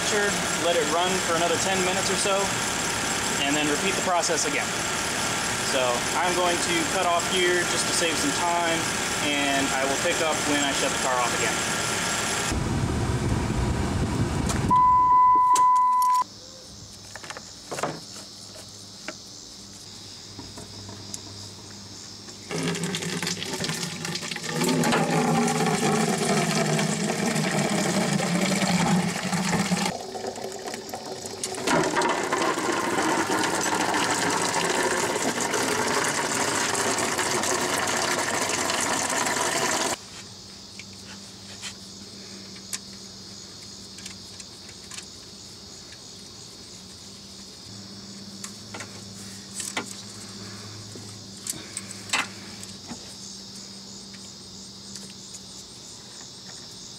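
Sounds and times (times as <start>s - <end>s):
short high beep: 14.7s - 16.2s
liquid pouring into plastic jug: 22.5s - 40.0s.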